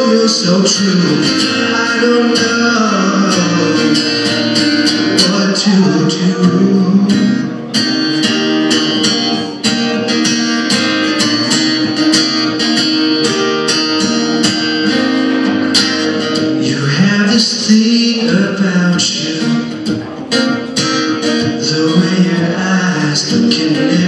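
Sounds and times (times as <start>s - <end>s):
person singing: 0.0s - 8.0s, 16.6s - 24.0s
acoustic guitar strumming: 0.0s - 24.0s.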